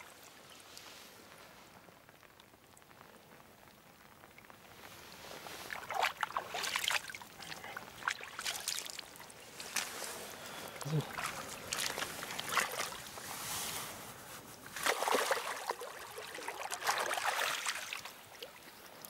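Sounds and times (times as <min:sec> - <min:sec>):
rustling wet grass: 0:00.0 - 0:19.0
splashing in shallow water: 0:05.4 - 0:13.3, 0:14.7 - 0:19.0.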